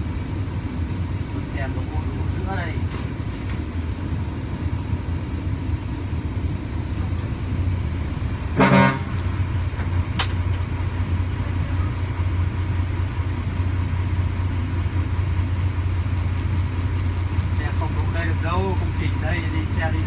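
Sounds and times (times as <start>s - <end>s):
truck diesel engine drone: 0.0s - 20.0s
horn toot: 8.5s - 9.4s.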